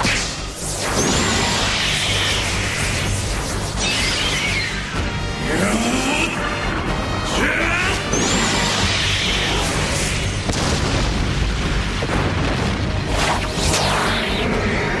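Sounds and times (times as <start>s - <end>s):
dramatic soundtrack music: 0.0s - 15.0s
booming explosions: 10.4s - 15.0s.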